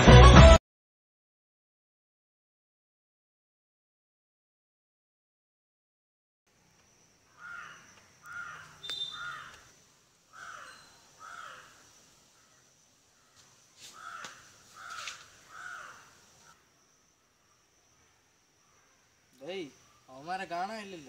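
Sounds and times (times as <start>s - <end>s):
faint high-pitched insect buzz: 6.5s - 21.0s
bird giving short calls: 7.4s - 9.7s.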